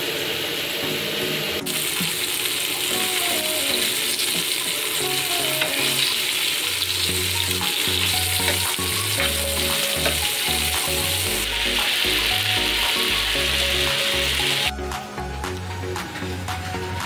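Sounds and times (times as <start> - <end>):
fish sizzling in hot oil: 1.6 - 14.7
background music with bass line: 6.9 - 17.0
metal spatula scraping and tapping: 10.0 - 10.3.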